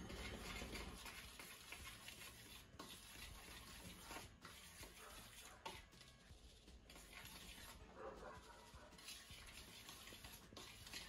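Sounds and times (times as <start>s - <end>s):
stirring dry flour in a bowl: 0.0s - 11.0s.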